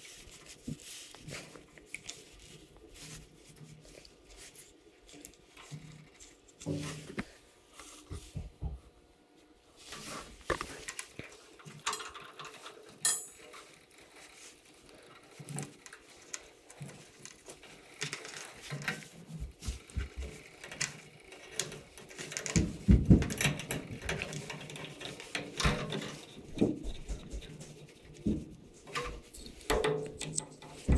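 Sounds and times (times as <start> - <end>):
small clicks taps and rustles: 10.0 - 30.9.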